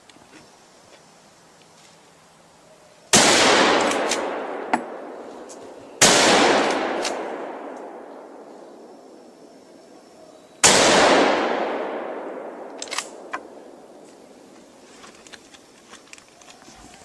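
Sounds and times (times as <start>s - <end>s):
rifle shots echoing: 3.1s - 5.2s, 6.0s - 8.5s, 10.6s - 14.0s.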